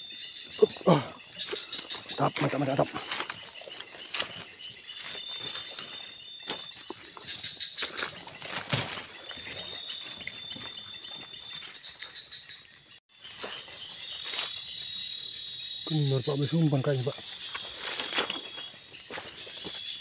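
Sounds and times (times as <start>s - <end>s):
night insects chorus: 0.0s - 20.0s
leaves and twigs rustling and snapping: 1.4s - 12.2s, 13.2s - 15.0s, 17.1s - 20.0s.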